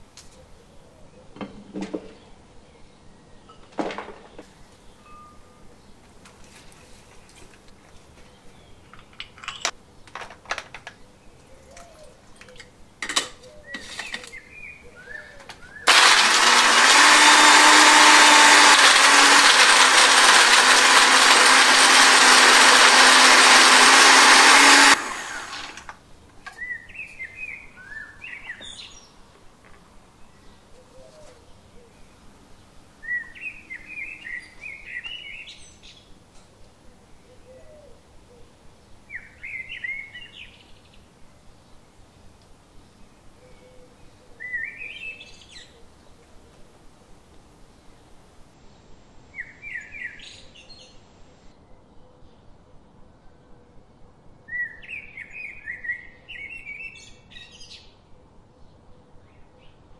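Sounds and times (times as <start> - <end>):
blender grinding: 15.9 - 26.0.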